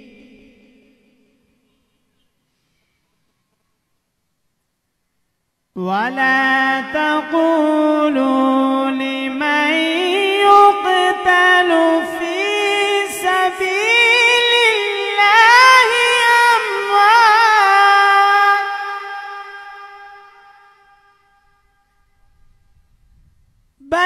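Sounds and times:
man chanting into a microphone: 0:00.0 - 0:01.3, 0:05.8 - 0:21.3.

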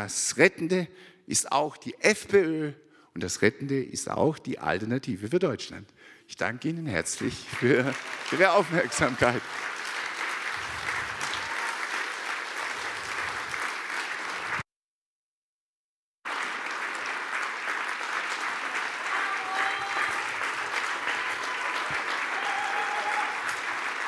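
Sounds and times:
crowd clapping: 0:07.1 - 0:14.6, 0:16.2 - 0:24.0.

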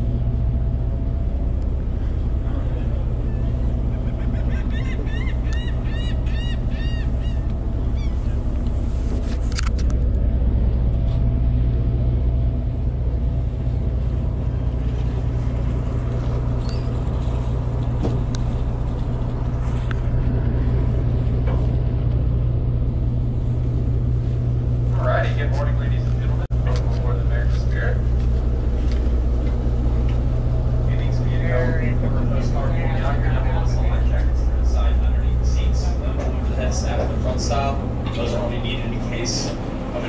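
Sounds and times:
boat engine humming: 0:00.0 - 0:40.0
bird crying: 0:02.5 - 0:08.6, 0:16.6 - 0:17.0.

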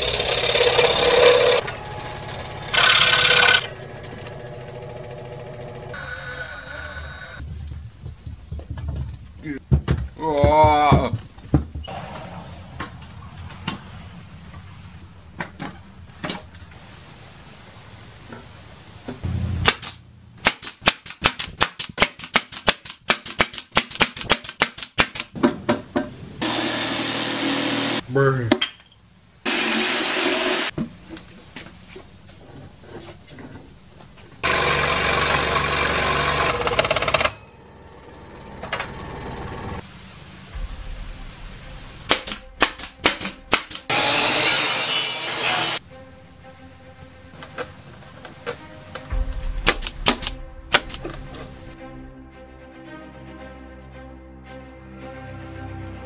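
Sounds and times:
scroll saw cutting wood: 0:00.0 - 0:07.4, 0:26.4 - 0:28.0, 0:29.5 - 0:30.7, 0:34.4 - 0:39.8, 0:42.1 - 0:45.8
nail gun firing into wood: 0:19.6 - 0:25.4, 0:42.1 - 0:44.7.

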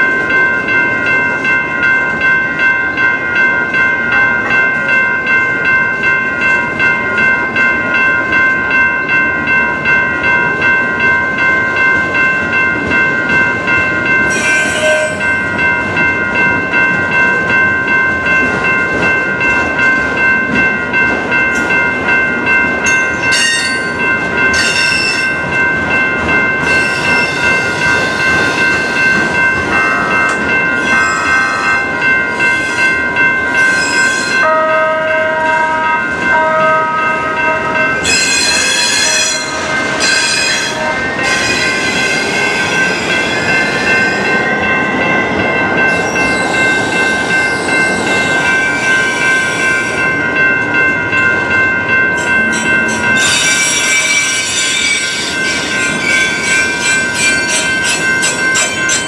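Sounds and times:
wheels clattering on rails: 0:00.0 - 0:34.6
train wheels squealing: 0:24.6 - 0:25.3, 0:26.6 - 0:29.3, 0:33.6 - 0:34.4, 0:38.0 - 0:44.3, 0:52.2 - 0:59.0.

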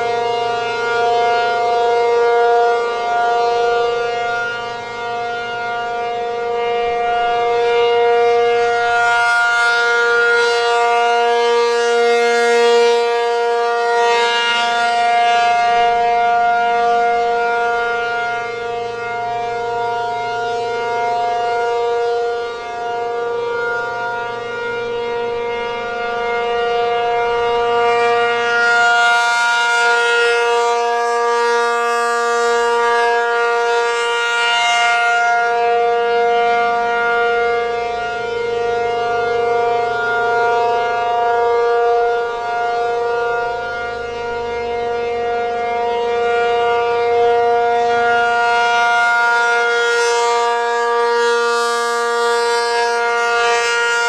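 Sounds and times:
rotating warning siren: 0:00.0 - 0:54.0.

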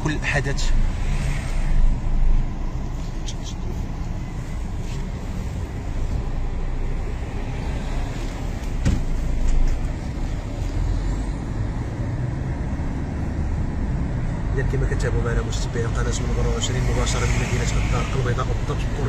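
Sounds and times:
cars passing in low rumble: 0:00.0 - 0:19.0.

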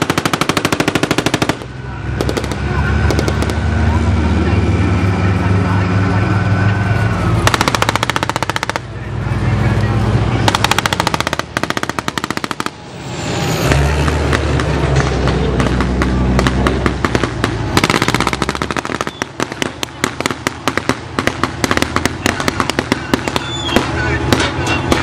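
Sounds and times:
machine-gun fire in bursts: 0:00.0 - 0:03.6, 0:07.4 - 0:08.9, 0:10.5 - 0:12.8, 0:15.6 - 0:25.0
single gunshots: 0:00.0 - 0:03.7, 0:07.4 - 0:08.9, 0:10.5 - 0:12.8, 0:15.6 - 0:25.0
armoured vehicle engine running: 0:00.0 - 0:25.0.

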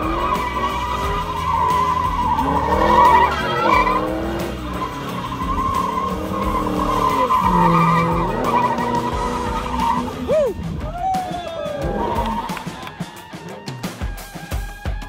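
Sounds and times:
car engine revving: 0:00.0 - 0:10.9, 0:11.5 - 0:13.0
tyres squealing: 0:00.0 - 0:14.0.

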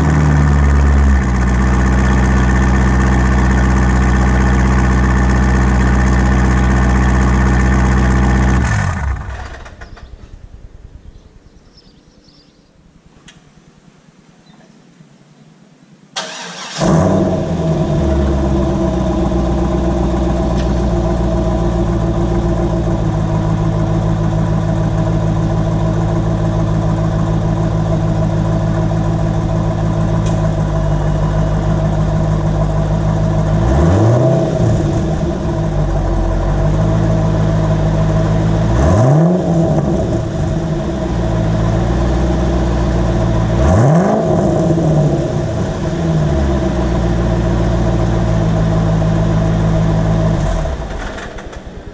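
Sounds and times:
car engine starting and idling: 0:00.0 - 0:11.5, 0:16.2 - 0:51.9
engine revving blips: 0:31.4 - 0:51.0.

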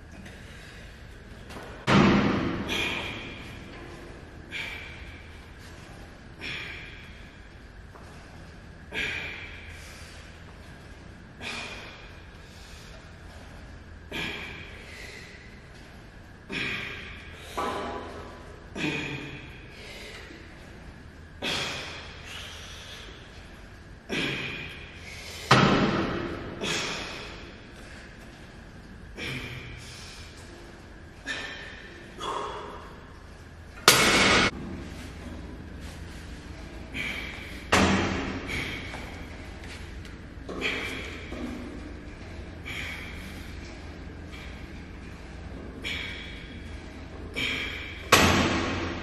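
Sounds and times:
man breathing hard: 0:00.0 - 0:28.3, 0:28.9 - 0:49.0
man exhaling forcefully: 0:01.9 - 0:03.5, 0:08.9 - 0:10.2, 0:11.4 - 0:13.0, 0:14.1 - 0:15.5, 0:16.5 - 0:18.1, 0:24.1 - 0:27.5, 0:36.8 - 0:39.4, 0:42.6 - 0:43.6, 0:45.8 - 0:49.0.

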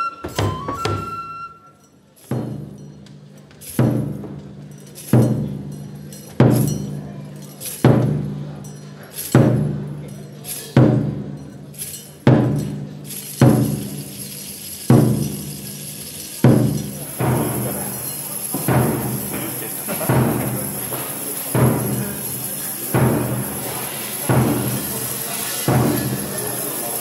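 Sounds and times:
flute note: 0:00.0 - 0:01.8
large barrel drum beaten slowly: 0:16.4 - 0:26.4.

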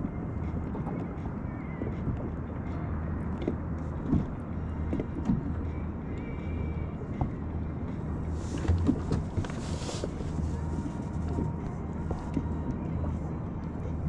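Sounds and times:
wind and water rumble: 0:00.0 - 0:14.0
light knocks on hull: 0:03.4 - 0:05.5, 0:08.5 - 0:10.2.

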